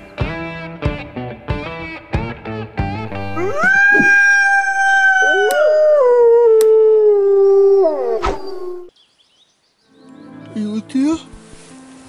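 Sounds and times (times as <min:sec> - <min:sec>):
wolf howling: 0:03.1 - 0:08.9
second wolf howling: 0:03.2 - 0:08.9.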